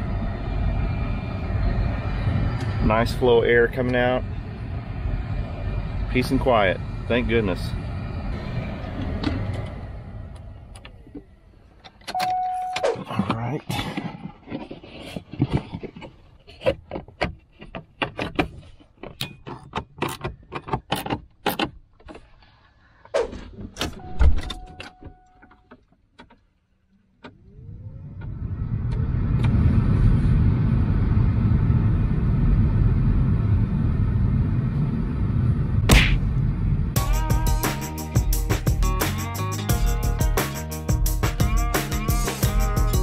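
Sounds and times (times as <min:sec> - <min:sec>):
rush of air: 0:00.0 - 0:10.8, 0:28.0 - 0:37.0
blower motor whirring: 0:00.0 - 0:11.8.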